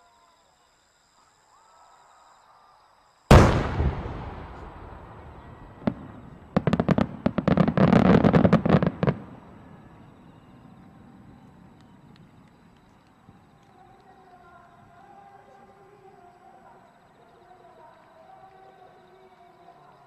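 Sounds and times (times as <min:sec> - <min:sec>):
sharp crack: 0:03.3 - 0:07.6.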